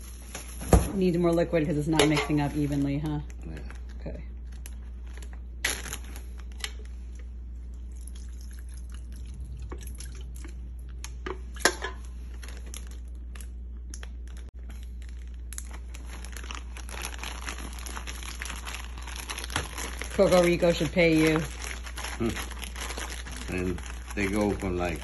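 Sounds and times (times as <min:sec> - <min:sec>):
plastic bag crinkling: 0:12.2 - 0:25.0.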